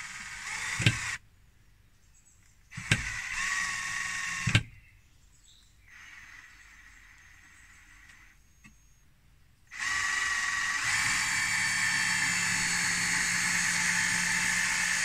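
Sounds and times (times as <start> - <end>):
cordless drill driving a screw: 0.0 - 1.2, 2.7 - 4.7, 5.9 - 8.8, 9.7 - 15.0.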